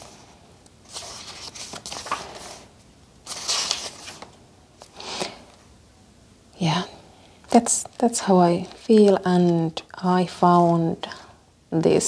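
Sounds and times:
notebook pages rustling: 0.8 - 4.9.

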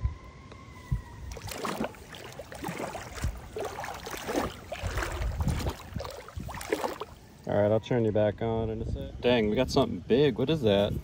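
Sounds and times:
water splashing and sloshing: 0.6 - 7.5.

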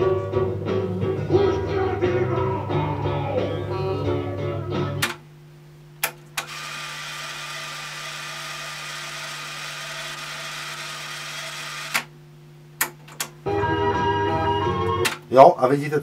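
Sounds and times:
tape winding whir: 6.0 - 12.1.

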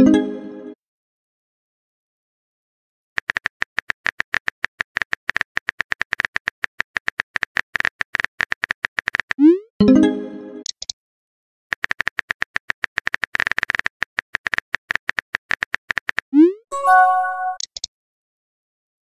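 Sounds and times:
keyboard typing clicks: 3.2 - 9.4, 11.7 - 16.2, 17.3 - 17.9.

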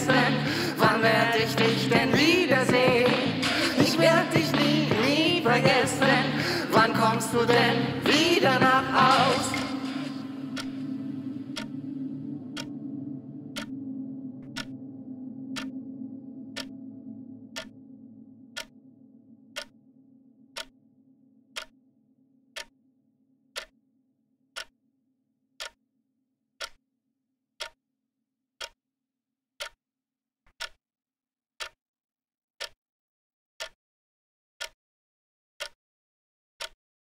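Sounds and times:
clock ticking: 0.0 - 12.8, 13.5 - 13.7, 14.4 - 14.7, 16.6 - 16.8, 25.6 - 25.8, 26.6 - 26.8, 27.6 - 27.8, 29.6 - 29.8, 30.5 - 30.8
low held tone: 8.8 - 21.5.

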